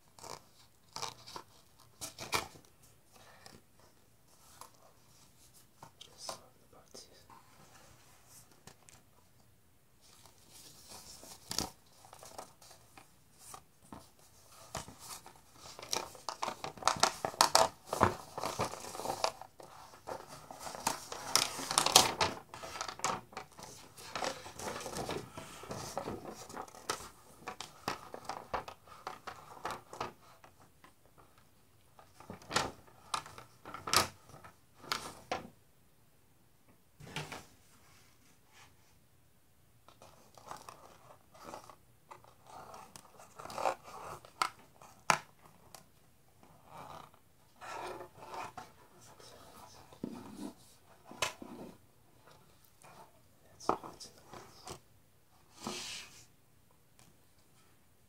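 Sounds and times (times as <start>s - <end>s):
paper crinkling and rustling: 10.0s - 31.4s.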